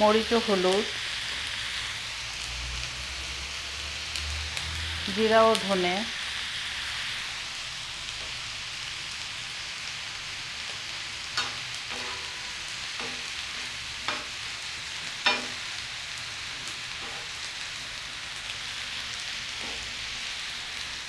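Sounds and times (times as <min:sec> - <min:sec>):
food sizzling on griddle: 0:00.0 - 0:21.0
metal spatula clacking on pan: 0:11.4 - 0:12.4, 0:13.0 - 0:13.4, 0:14.0 - 0:14.4, 0:15.2 - 0:15.6.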